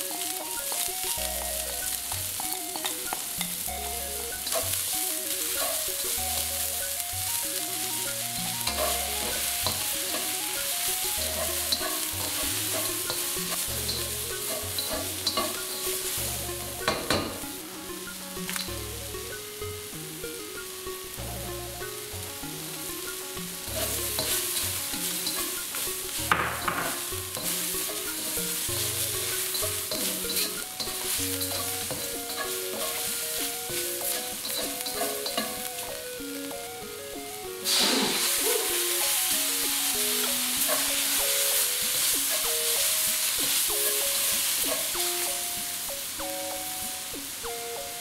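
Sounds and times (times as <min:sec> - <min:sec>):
spatula scraping and tapping pan: 0:00.0 - 0:03.7, 0:04.3 - 0:17.6, 0:18.4 - 0:18.8, 0:22.7 - 0:36.7, 0:37.7 - 0:45.8
vegetables sizzling in hot oil: 0:00.0 - 0:48.0.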